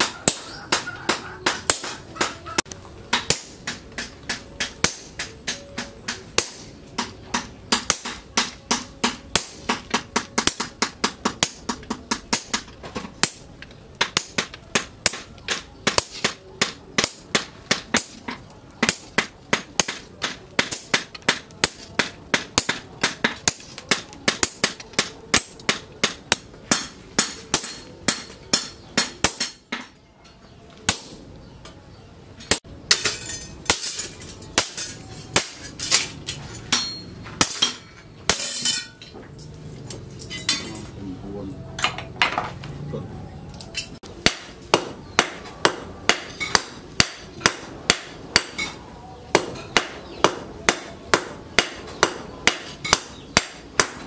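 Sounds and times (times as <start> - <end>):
sledgehammer ringing on anvil: 0.0 - 1.0, 36.7 - 39.0.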